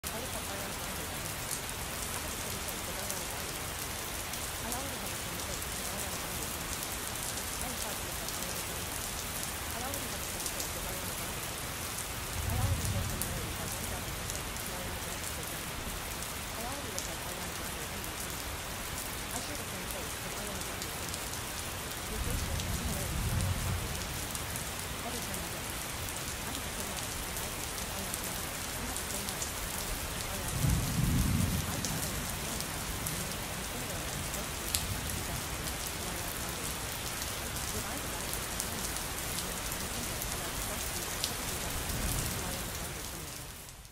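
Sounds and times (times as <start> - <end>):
steady rain falling: 0.0 - 43.9
low rumble of thunder: 12.3 - 14.0, 22.2 - 24.2, 30.5 - 33.2.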